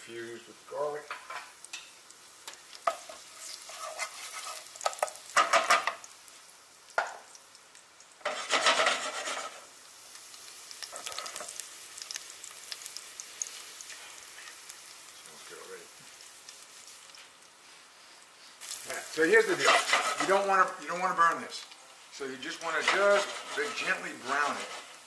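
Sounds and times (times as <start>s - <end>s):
garlic sizzling in oil: 0.0s - 25.0s
pan scraping on stove: 2.8s - 6.0s, 8.2s - 9.7s, 19.4s - 20.6s, 22.5s - 25.0s.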